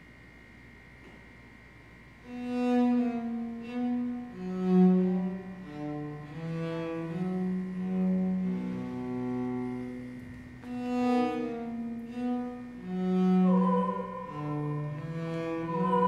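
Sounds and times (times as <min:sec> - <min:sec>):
bowed string instrument playing: 0:02.3 - 0:16.0
faint steady high tone: 0:12.1 - 0:16.0.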